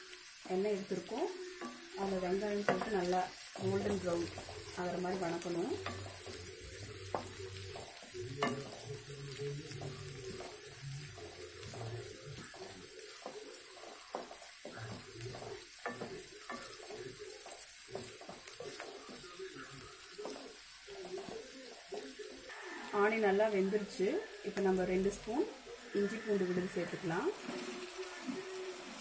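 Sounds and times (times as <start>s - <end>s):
shallots sizzling in oil: 0.0s - 29.0s
wooden spatula scraping pan: 1.6s - 22.1s.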